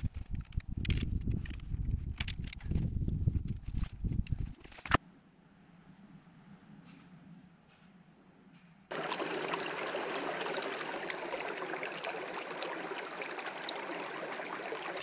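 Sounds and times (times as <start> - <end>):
creek running over rocks: 8.9 - 15.0.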